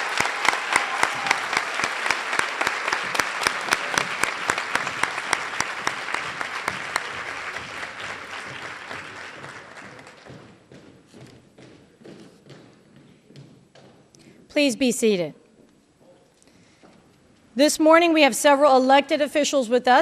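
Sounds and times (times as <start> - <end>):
close single person clapping: 0.0 - 10.2
audience applauding: 0.0 - 10.5.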